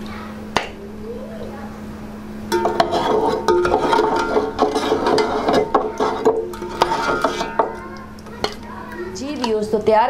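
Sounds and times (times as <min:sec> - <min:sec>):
metal ladle scraping a pot: 0:02.5 - 0:09.5.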